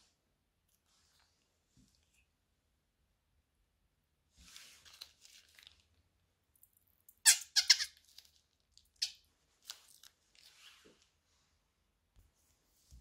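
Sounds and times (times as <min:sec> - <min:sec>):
plastic bag crinkling: 0:04.7 - 0:06.0.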